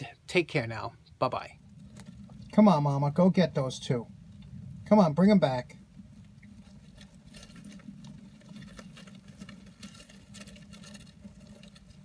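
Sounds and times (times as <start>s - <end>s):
rodents rustling in bedding: 5.8s - 12.0s.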